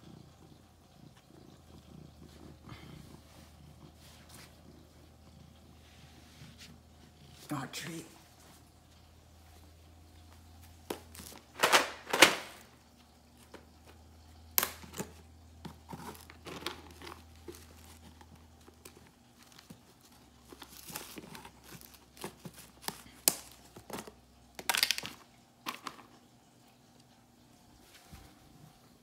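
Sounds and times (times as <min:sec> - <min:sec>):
plastic tub rustling and clicking: 0:10.9 - 0:12.7.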